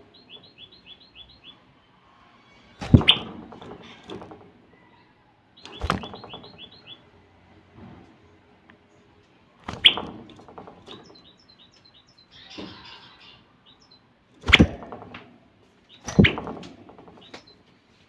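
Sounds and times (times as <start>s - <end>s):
bird chirping: 0.0s - 7.3s, 8.3s - 15.1s, 15.8s - 17.9s
thumps in wire cage: 2.8s - 4.6s, 5.6s - 6.9s, 9.6s - 11.3s, 14.4s - 17.5s.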